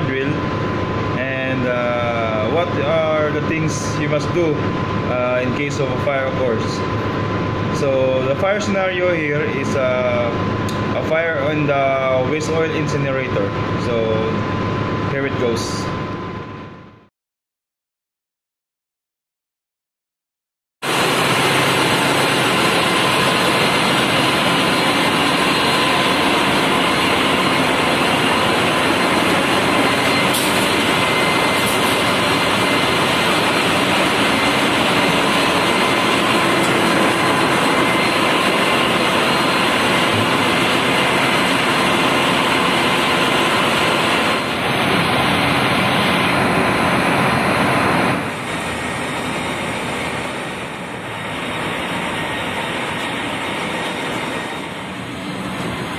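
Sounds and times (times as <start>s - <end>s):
engine-room machinery din: 0.0s - 17.1s, 20.8s - 55.9s
faint steady whines: 0.0s - 17.1s.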